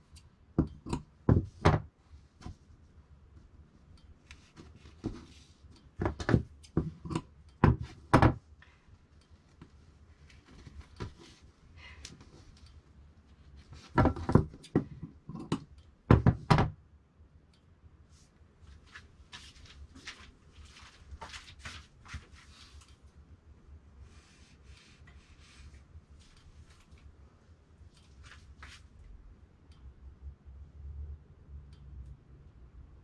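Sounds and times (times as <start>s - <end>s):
cloth rustling: 18.7s - 22.9s, 28.0s - 28.9s.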